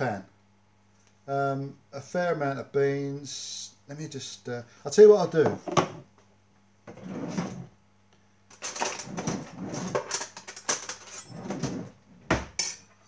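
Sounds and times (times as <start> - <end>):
metal cutlery clinking: 8.6 - 11.5, 12.6 - 12.9.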